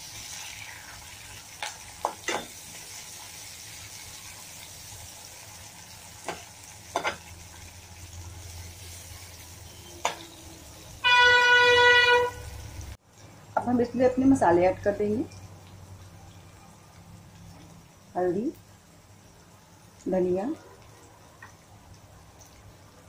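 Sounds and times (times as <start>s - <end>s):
onions sizzling in oil: 0.0s - 23.0s
loud horn-like tone: 11.0s - 12.7s.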